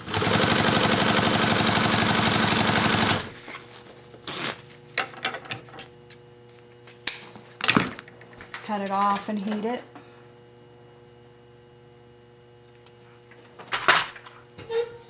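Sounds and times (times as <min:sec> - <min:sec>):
sewing machine stitching: 0:00.0 - 0:03.3.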